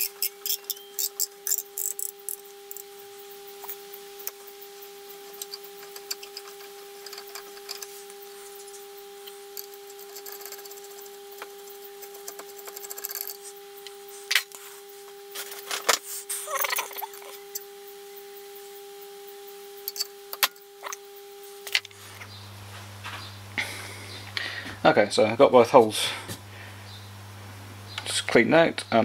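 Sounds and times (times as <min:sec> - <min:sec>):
metal tools clinking: 0:00.0 - 0:02.1
threading tool scraping metal: 0:05.3 - 0:08.0, 0:08.6 - 0:13.5.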